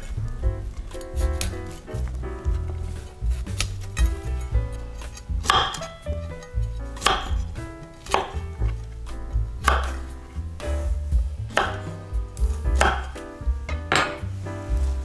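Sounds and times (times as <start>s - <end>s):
background music: 0.0s - 15.0s
knife cutting vegetables on board: 0.8s - 8.9s.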